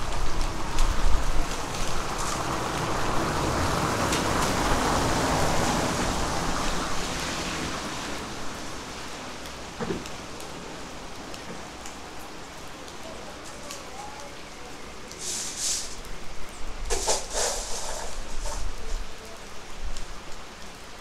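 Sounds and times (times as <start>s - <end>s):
steady rain falling: 0.0s - 21.0s
rushing noise: 15.1s - 19.0s.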